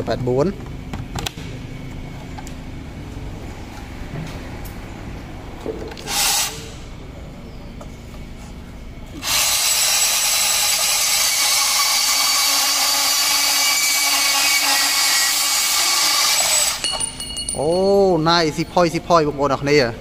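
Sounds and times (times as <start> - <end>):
band saw cutting metal: 6.0 - 6.8, 9.2 - 16.8.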